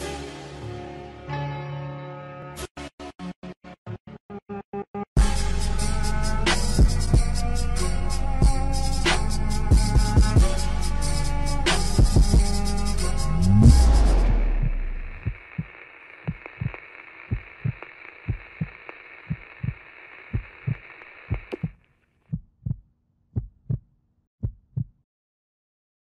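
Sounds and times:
heartbeat thumps: 9.8s - 10.5s, 13.6s - 15.7s, 16.3s - 18.7s, 19.3s - 22.8s, 23.4s - 23.8s, 24.4s - 25.0s
steady hiss: 14.9s - 21.7s.

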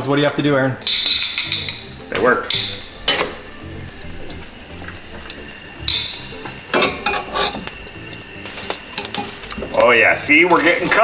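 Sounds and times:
metal tongs clattering on grate: 0.8s - 3.4s, 4.1s - 10.0s.

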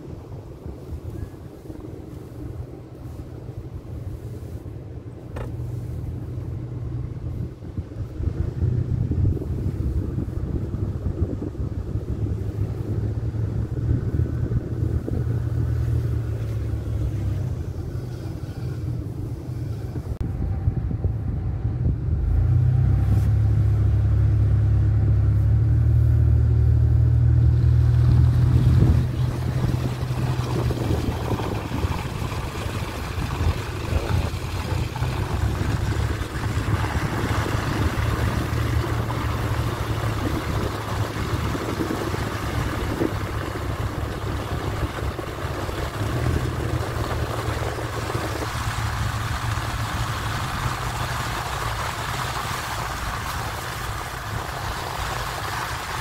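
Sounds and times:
car engine drone: 0.0s - 56.0s
tyre noise on snow: 22.2s - 24.0s, 25.2s - 56.0s.

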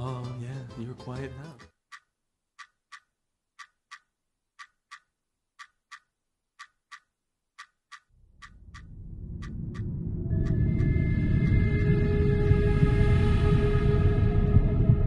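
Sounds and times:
clock ticking: 1.4s - 10.6s
low rumble: 8.2s - 15.0s.

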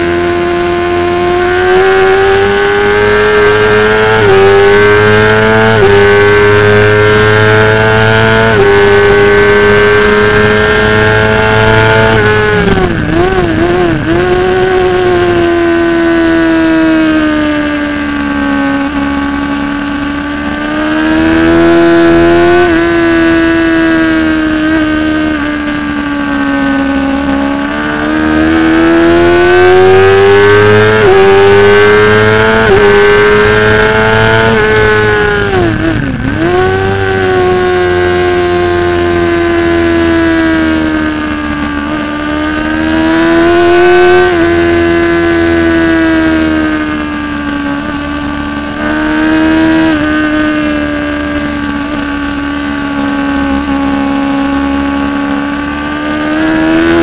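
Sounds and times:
motorcycle engine at high revs: 0.0s - 57.0s.

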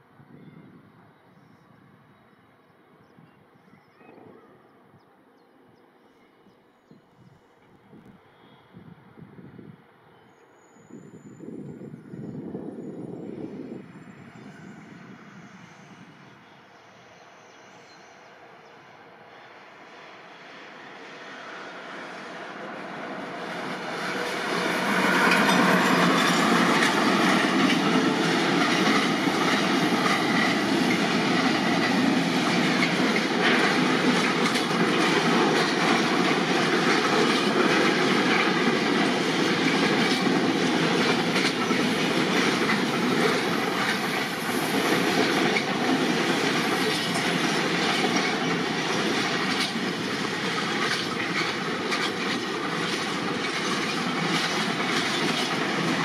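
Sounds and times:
train passing: 0.0s - 56.0s
train wheels clicking: 23.1s - 56.0s.

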